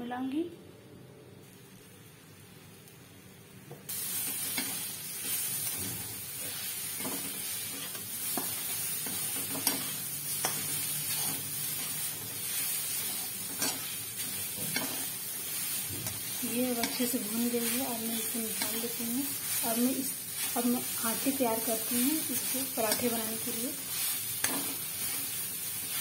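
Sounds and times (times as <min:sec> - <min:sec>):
vegetables sizzling in a pan: 0:01.4 - 0:26.0
metal spatula scraping a pan: 0:04.4 - 0:20.6.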